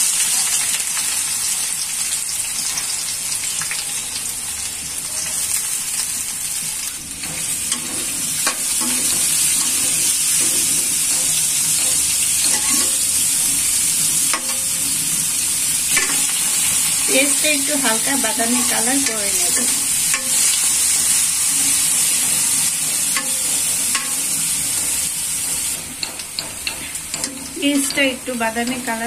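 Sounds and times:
onions sizzling in hot oil: 0.0s - 29.0s
metal spoon scraping pan: 7.2s - 15.2s.

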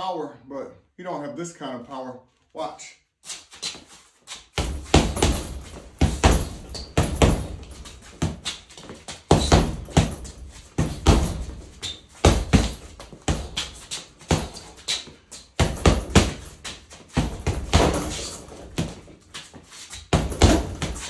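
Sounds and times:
boxing gloves thudding heavy bag: 4.6s - 19.2s, 20.0s - 21.0s.

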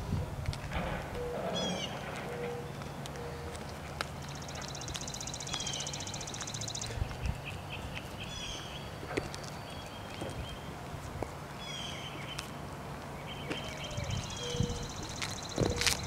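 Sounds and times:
bird trilling: 1.2s - 2.0s
small birds chirping: 1.6s - 12.6s, 13.2s - 16.0s.

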